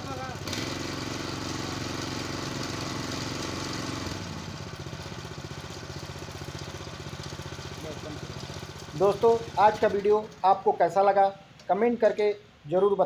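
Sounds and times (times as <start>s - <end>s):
small petrol engine running: 0.0s - 10.4s.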